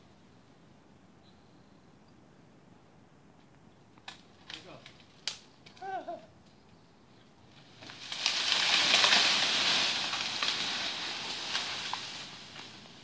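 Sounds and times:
wood crackling snaps: 4.0 - 5.9, 7.6 - 12.8
tree branches crashing and rustling: 7.5 - 13.0.

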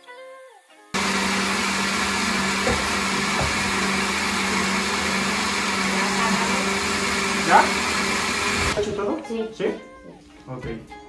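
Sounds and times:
blender running: 1.0 - 8.8.

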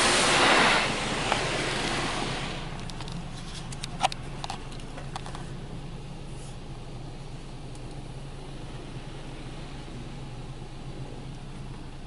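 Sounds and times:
water spray hissing on car: 0.0 - 3.4.

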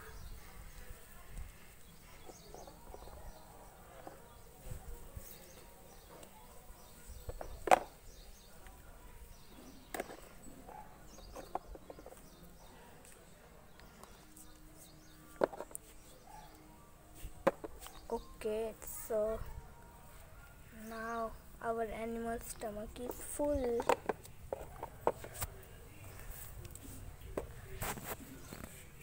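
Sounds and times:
plastic toys clicking and tapping: 22.8 - 25.5.

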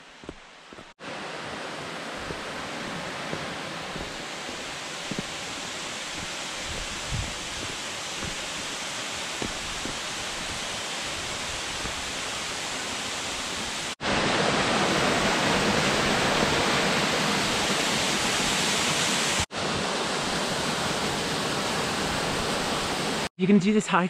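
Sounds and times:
waterfall rushing: 0.0 - 23.3.

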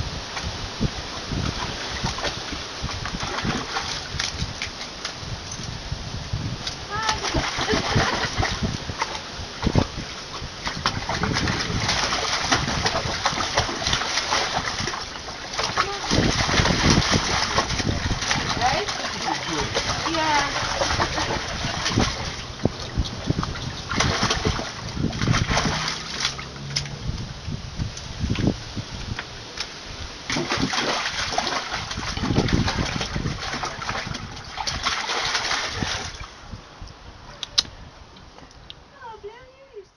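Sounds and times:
puppy splashing water in a tub: 0.3 - 5.3, 6.6 - 27.3, 28.2 - 36.4
sharp click: 37.4 - 37.7.

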